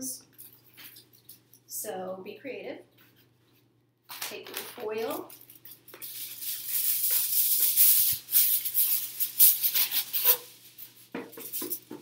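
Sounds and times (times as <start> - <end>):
aluminium foil crinkling: 0.3 - 1.6, 4.1 - 12.0.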